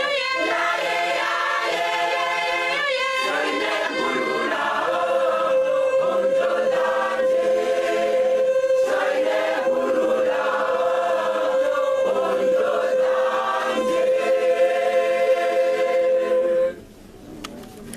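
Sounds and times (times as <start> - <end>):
large choir singing: 0.0 - 16.8.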